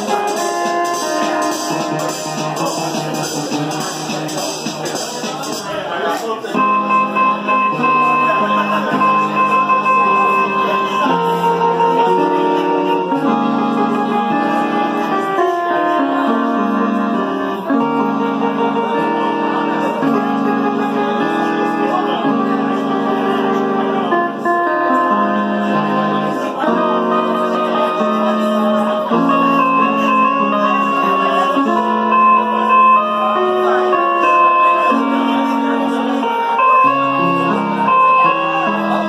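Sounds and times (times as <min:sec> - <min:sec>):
synthesizer chords: 0:00.0 - 0:39.0
synthesizer melody: 0:00.0 - 0:39.0.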